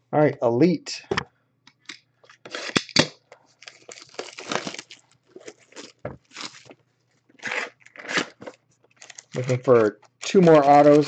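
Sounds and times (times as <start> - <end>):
shrink wrap tearing and crinkling: 2.4 - 6.8, 7.4 - 11.0.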